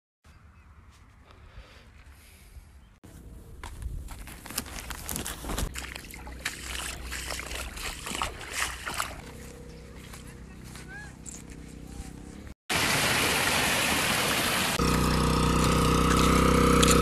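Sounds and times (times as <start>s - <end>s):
stones clicking and crunching: 3.6s - 5.8s
river water trickling over pebbles: 4.2s - 10.1s, 12.9s - 17.0s.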